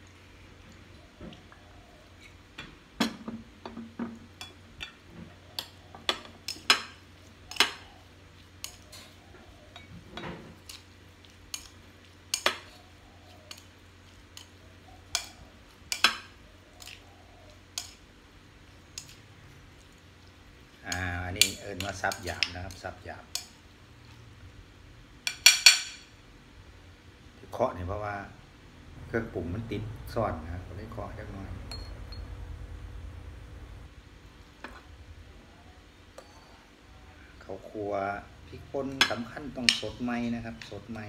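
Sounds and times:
spoon clinking against bowl: 0:31.7 - 0:32.2.

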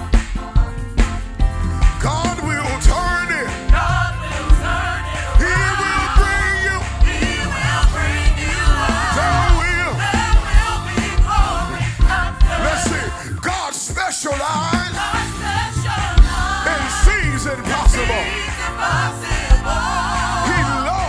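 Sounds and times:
backing singers: 0:00.0 - 0:21.0
band with heavy bass and drums: 0:00.0 - 0:21.0
male lead singer: 0:05.3 - 0:07.8, 0:16.6 - 0:18.5.

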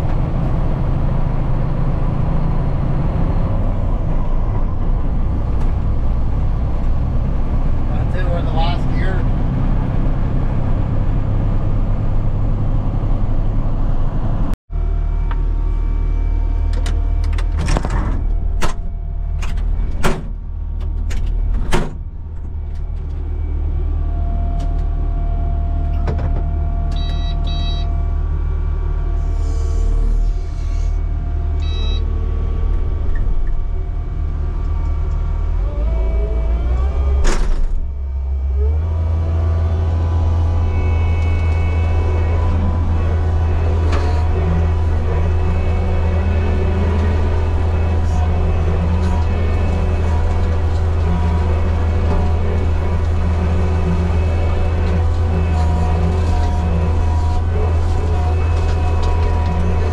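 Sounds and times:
diesel engine running: 0:00.0 - 0:59.9
electronic beeps: 0:26.9 - 0:28.0, 0:31.6 - 0:32.1.

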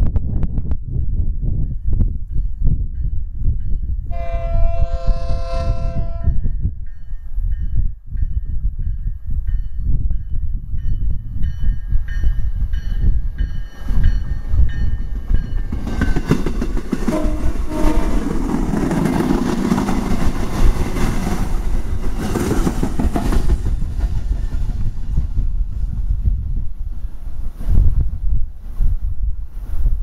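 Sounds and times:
wind buffeting microphone: 0:00.0 - 0:30.0
train horn blasts: 0:04.1 - 0:06.4, 0:17.0 - 0:18.6
train passing loudly: 0:11.4 - 0:25.5.

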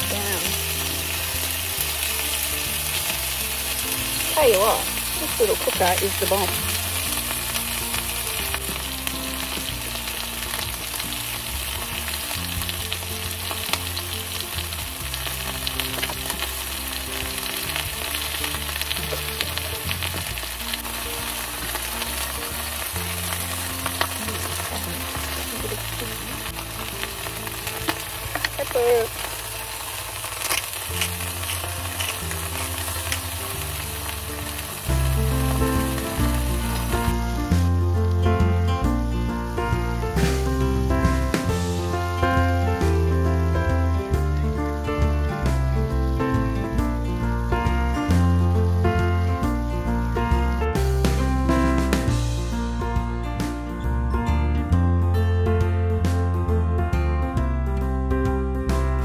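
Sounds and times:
food sizzling in a pan: 0:00.0 - 0:53.8.

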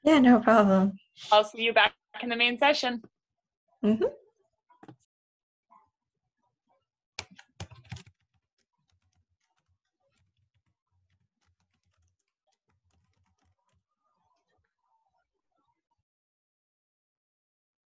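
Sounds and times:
typing on computer keyboard: 0:07.2 - 0:13.8.

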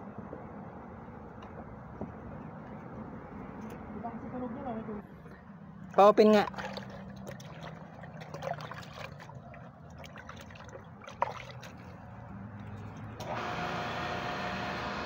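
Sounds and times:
water dribbling: 0:05.8 - 0:13.2
electric water pump whining: 0:12.2 - 0:15.0.

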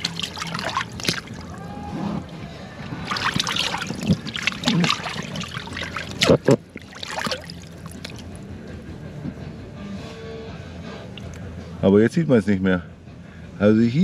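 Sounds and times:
hand swishing through water: 0:00.0 - 0:08.4.

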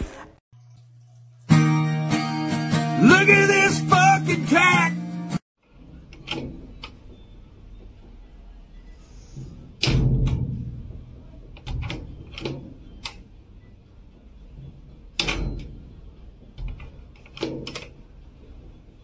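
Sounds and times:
metal hatch door clanking shut: 0:09.8 - 0:11.0, 0:15.2 - 0:15.8
latch clicks: 0:15.2 - 0:15.7, 0:16.6 - 0:18.0.

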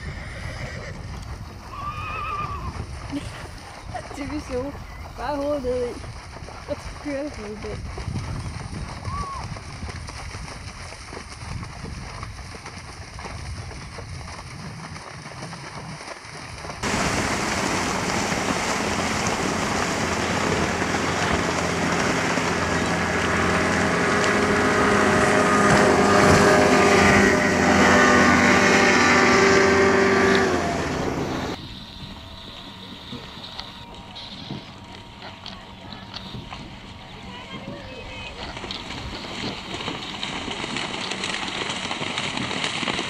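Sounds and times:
wind buffeting microphone: 0:00.0 - 0:43.0
motor running: 0:16.8 - 0:42.0.

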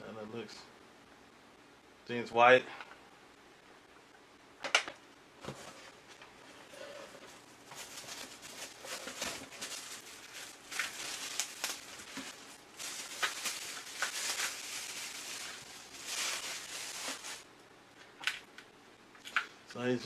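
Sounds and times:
plastic packaging crinkling: 0:07.2 - 0:17.5.

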